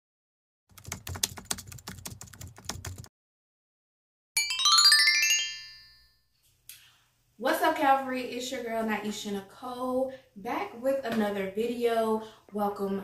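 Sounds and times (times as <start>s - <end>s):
keyboard typing clicks: 0.7s - 3.1s
descending chime notes: 4.4s - 6.2s.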